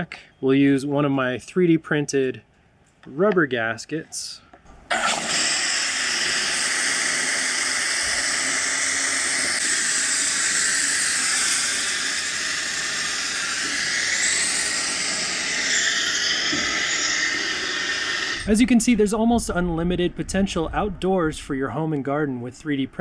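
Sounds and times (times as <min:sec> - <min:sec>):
water hissing from garden sprayer: 0:04.9 - 0:18.8.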